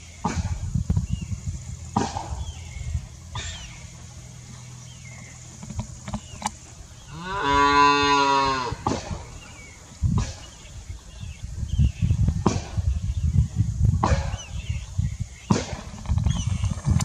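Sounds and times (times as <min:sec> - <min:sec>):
faint high bird chirps: 0:02.3 - 0:05.5
cow mooing: 0:07.1 - 0:08.9.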